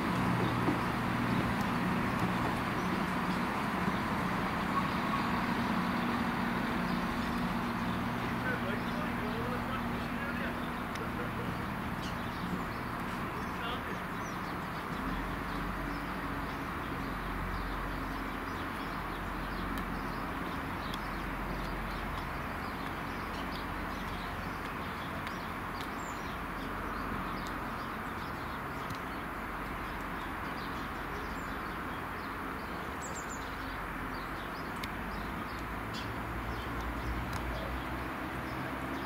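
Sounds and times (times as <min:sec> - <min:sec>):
diesel train engine droning: 0:00.0 - 0:14.1
small birds chirping: 0:00.0 - 0:39.0.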